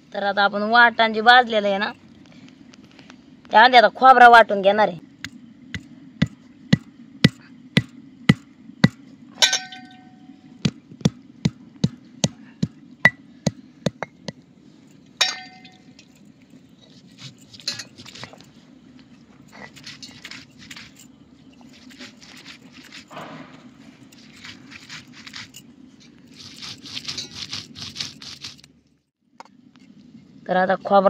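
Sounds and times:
stone roller pounding on stone: 5.7 - 9.9, 10.6 - 14.4
stone rolling and scraping: 15.2 - 28.8.

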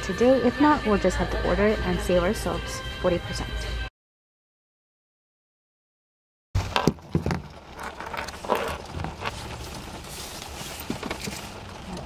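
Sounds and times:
clothing rustling: 7.5 - 12.0.

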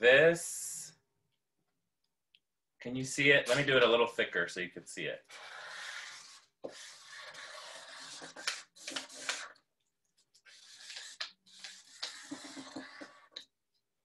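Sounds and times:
marker scratching on card: 5.3 - 9.6, 10.4 - 13.4.

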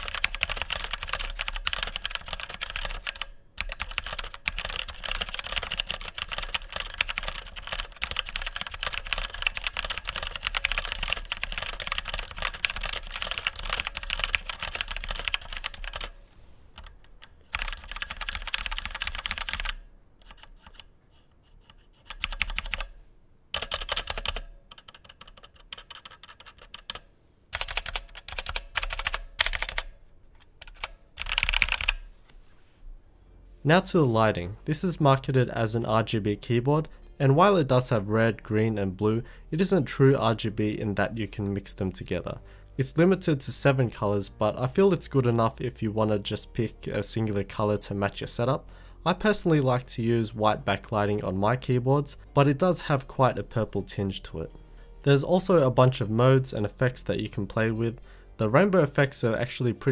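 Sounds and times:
typing on mechanical keyboard: 0.0 - 16.2, 16.8 - 20.9, 21.6 - 22.9, 23.5 - 32.0.

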